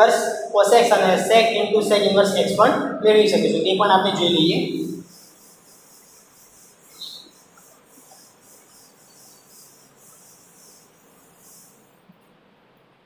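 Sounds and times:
board duster swishing on chalkboard: 4.0s - 12.1s.

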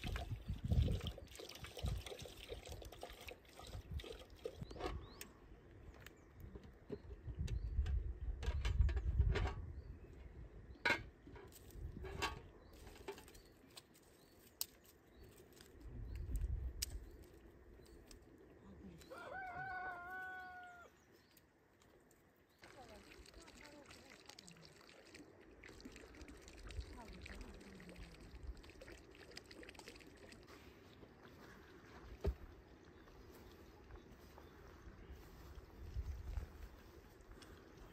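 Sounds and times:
rooster crowing: 19.1s - 20.9s.

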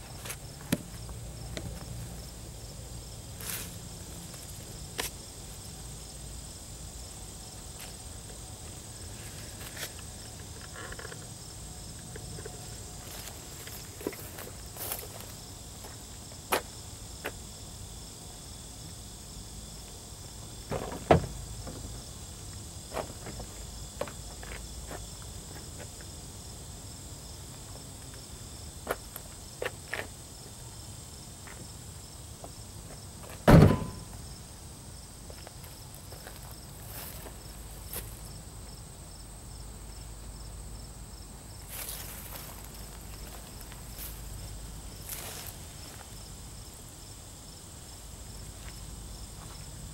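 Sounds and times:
insects chirring: 0.0s - 49.9s
loud thump: 33.5s - 34.2s
sharp knocks: 33.5s - 34.2s.

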